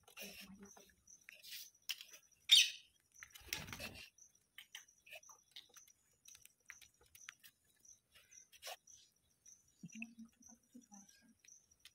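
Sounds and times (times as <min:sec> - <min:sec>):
faint chirps: 0:00.0 - 0:11.9
parakeet call: 0:02.5 - 0:02.9
wings flapping: 0:03.3 - 0:04.1.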